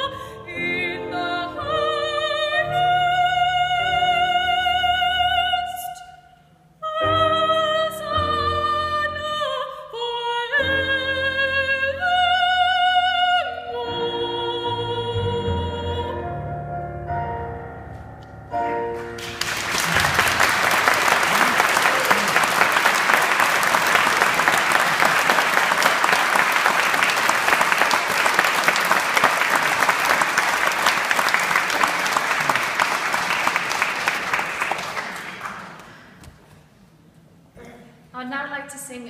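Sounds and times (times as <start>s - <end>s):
soprano singing with piano: 0.0s - 6.2s, 6.8s - 17.4s
audience applause: 19.0s - 36.2s.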